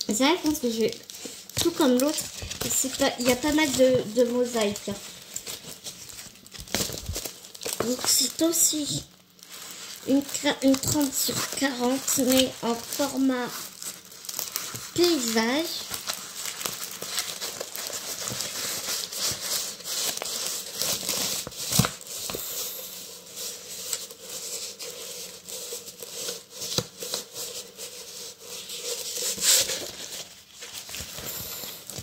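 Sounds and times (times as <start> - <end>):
plastic film crinkling: 0.0 - 32.0.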